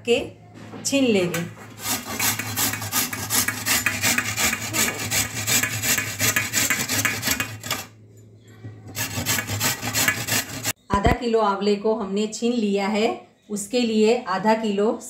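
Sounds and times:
fruit scraping on metal grater: 1.7 - 7.9, 8.9 - 10.8.

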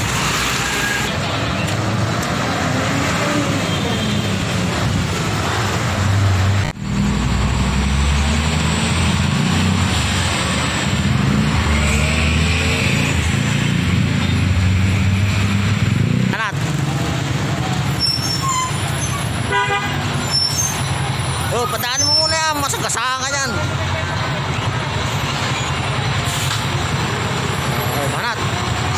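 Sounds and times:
diesel truck engines running: 20.1 - 28.9.

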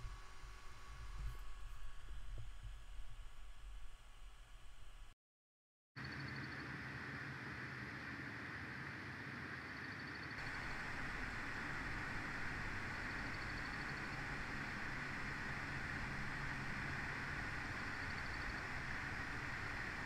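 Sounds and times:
low hum: 0.0 - 5.2, 10.4 - 20.0.

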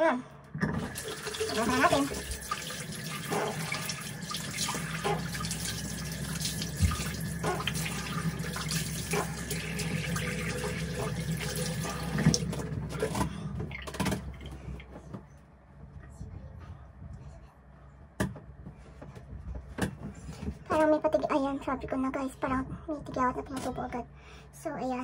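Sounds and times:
tap running into sink: 0.6 - 13.1
water splashing on face: 0.9 - 13.1.

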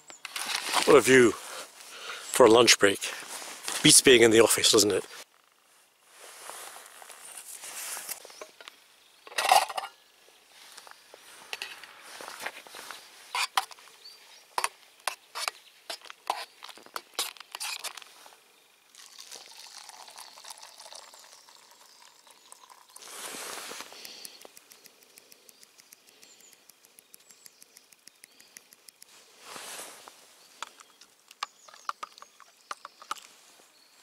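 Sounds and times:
hot drink pouring into mug: 18.9 - 24.2.

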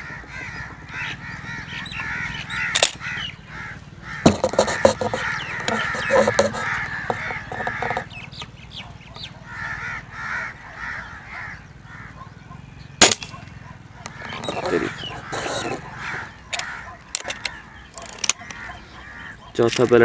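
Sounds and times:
birds calling: 0.0 - 20.0
air rifle shot: 13.0 - 13.3
metallic clicks of rifle barrel: 16.5 - 18.6.

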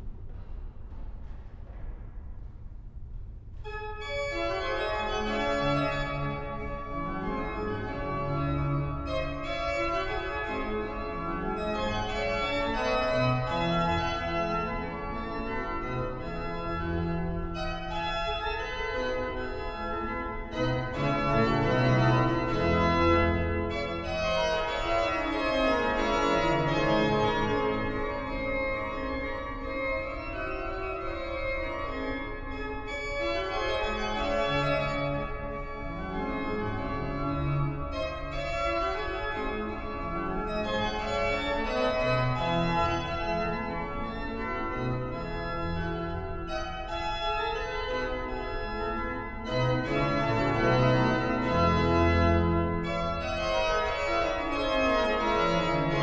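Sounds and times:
pipe organ playing: 3.6 - 56.0.

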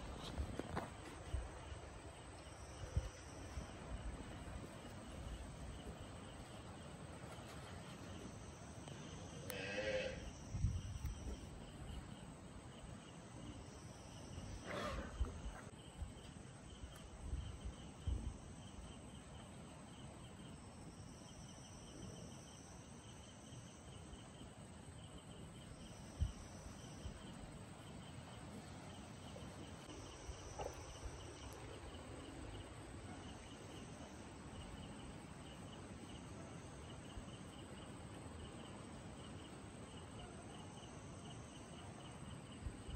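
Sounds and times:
crickets chirping: 0.0 - 42.9
high insect buzz: 9.1 - 11.4.

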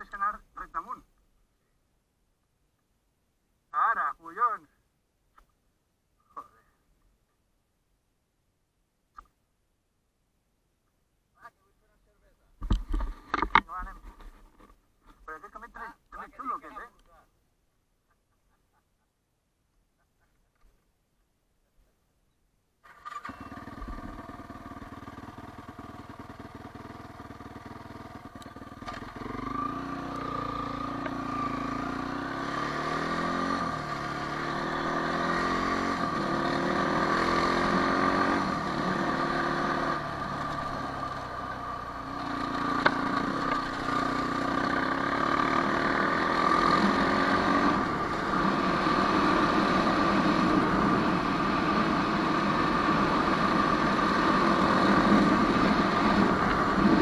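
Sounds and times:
quad bike engine: 22.8 - 57.0.

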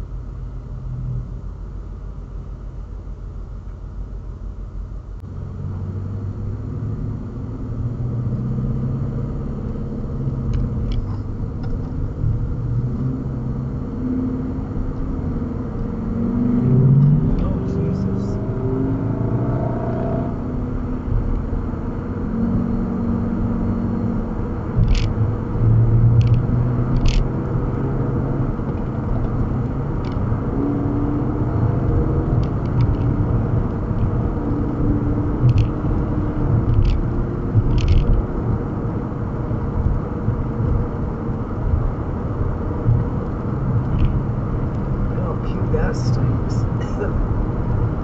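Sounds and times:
car road and engine rumble: 0.0 - 48.0.

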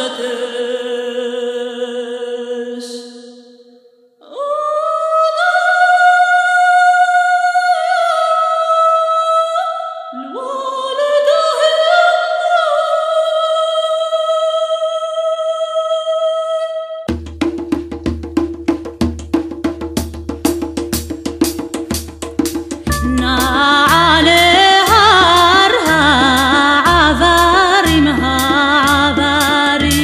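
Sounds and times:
woman singing unaccompanied: 4.2 - 17.1, 22.9 - 30.0
low drum: 17.1 - 30.0.

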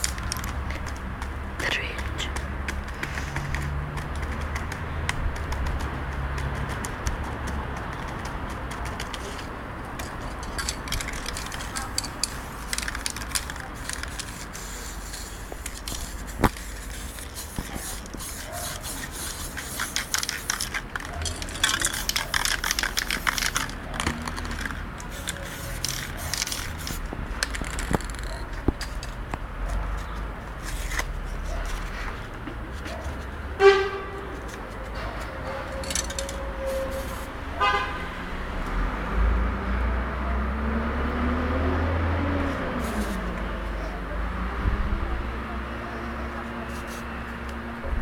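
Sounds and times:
spray paint can hissing: 0.0 - 1.0, 8.0 - 29.2, 35.8 - 37.4, 42.8 - 43.3
handling noises: 0.0 - 37.8.

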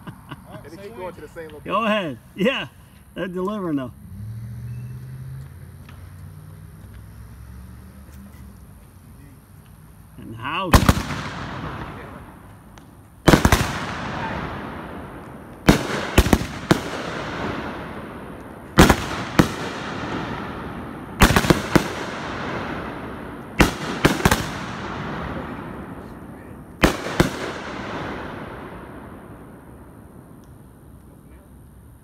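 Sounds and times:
firework bangs: 10.4 - 30.7.

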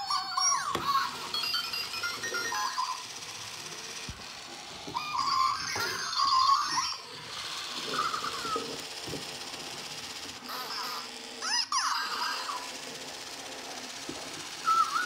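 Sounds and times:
small motor hum: 0.0 - 15.0
electronic squeaks and chirps: 5.0 - 7.0.

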